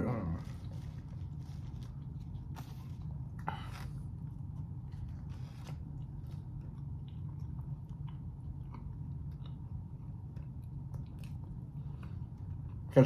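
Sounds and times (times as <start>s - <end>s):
steady low hum: 0.0s - 13.0s
chewing with wet mouth clicks: 6.0s - 12.9s.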